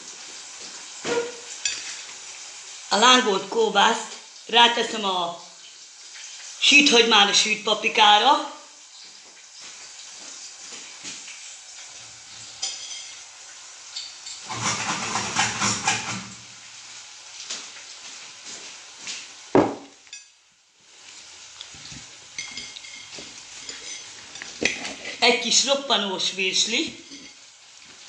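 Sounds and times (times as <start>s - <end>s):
food sizzling in a frying pan: 0.0s - 14.5s, 15.9s - 28.0s
pots and utensils clattering: 0.6s - 2.1s, 12.5s - 13.2s, 13.9s - 16.4s, 21.9s - 25.3s, 26.9s - 27.4s.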